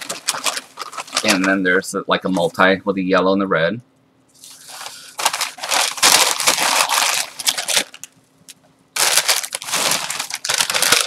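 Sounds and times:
bag crinkling and rustling: 0.0s - 1.6s, 4.4s - 8.2s, 9.0s - 11.0s.

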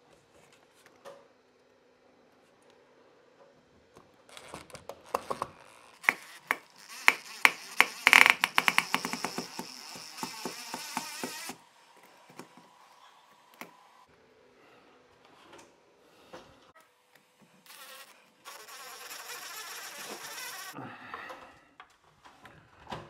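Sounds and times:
drill whining with rapid clicking: 5.1s - 11.6s, 17.7s - 20.8s.

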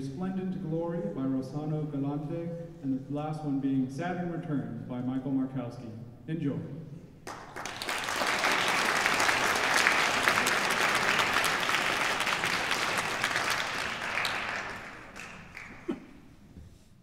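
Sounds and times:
audience applauding: 7.2s - 16.3s.

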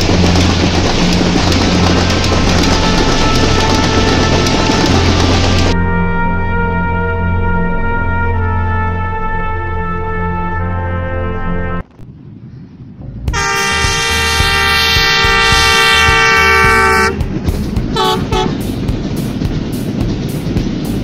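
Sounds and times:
clatter of train wheels: 0.0s - 5.8s, 13.0s - 21.0s
train rumbling past: 0.0s - 21.0s
locomotive horn: 1.7s - 11.9s, 13.3s - 18.7s.

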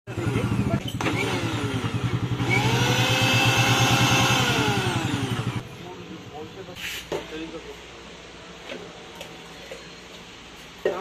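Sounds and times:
mixer grinder motor whining: 0.2s - 5.6s.

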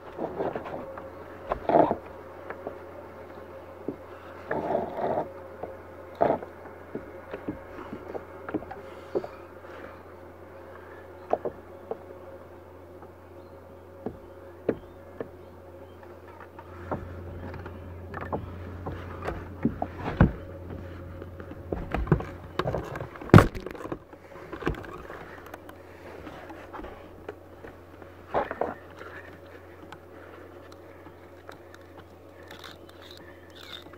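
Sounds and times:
steady low hum: 0.0s - 33.9s
fishing tackle clicks and knocks: 30.6s - 33.9s.

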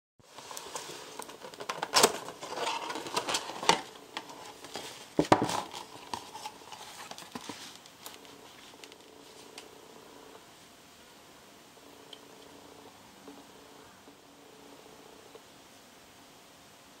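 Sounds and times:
paperboard box rustling: 0.3s - 9.6s.

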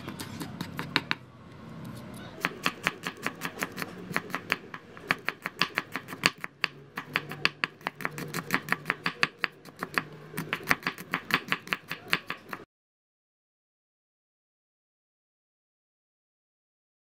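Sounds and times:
knife tapping on wooden board: 0.1s - 1.2s.

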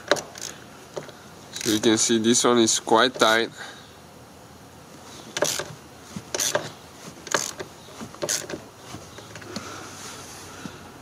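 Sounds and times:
hand ratchet clicking: 0.0s - 1.9s, 5.4s - 8.6s.

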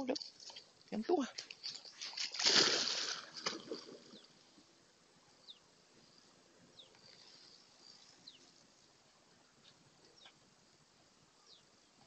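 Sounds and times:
small bird chirping: 5.4s - 8.6s, 11.4s - 11.7s.

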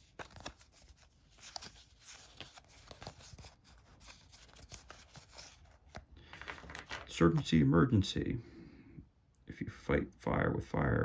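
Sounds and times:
cards sliding and flicking: 0.0s - 7.1s.

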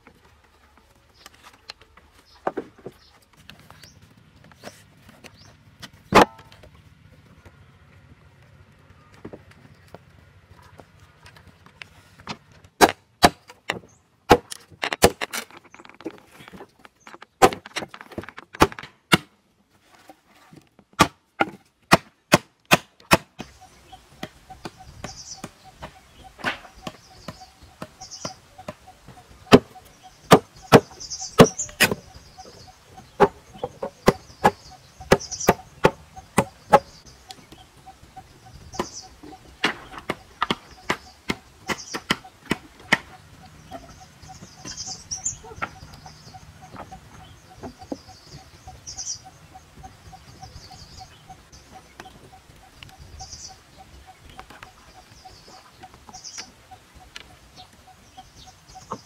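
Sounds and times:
chopping on wooden poles: 2.4s - 3.5s, 5.8s - 6.7s, 12.2s - 19.4s, 20.0s - 37.9s, 38.7s - 48.4s.

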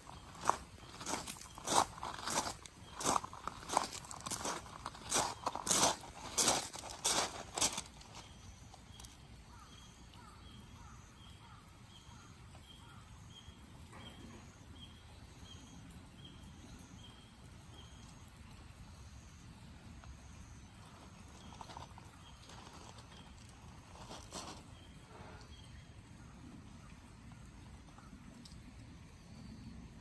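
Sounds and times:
footsteps on wet gravel: 0.0s - 9.2s, 20.6s - 25.7s.

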